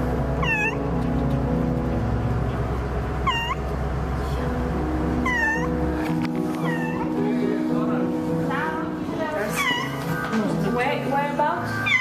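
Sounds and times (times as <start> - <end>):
low hum: 0.0 - 9.1
soft background music: 0.0 - 12.0
cat meowing: 0.4 - 0.8, 3.2 - 3.6, 5.2 - 5.8, 6.6 - 7.1, 9.5 - 10.0.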